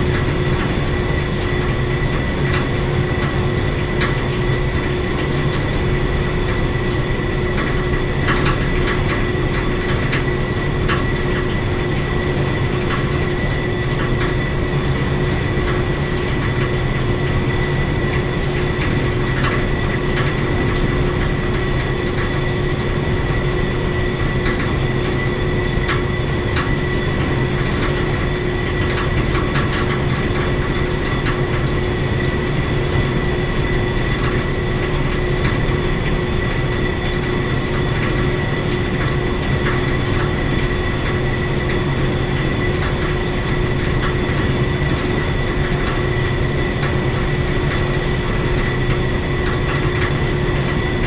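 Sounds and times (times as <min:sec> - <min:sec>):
machinery humming: 0:00.0 - 0:51.0.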